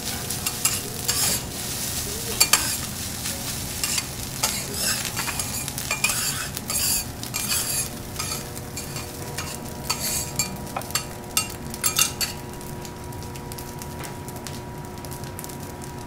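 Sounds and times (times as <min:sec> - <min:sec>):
food sizzling on griddle: 0:00.0 - 0:16.0
metal spatulas scraping and clinking: 0:00.3 - 0:01.6, 0:02.3 - 0:02.9, 0:03.5 - 0:12.5.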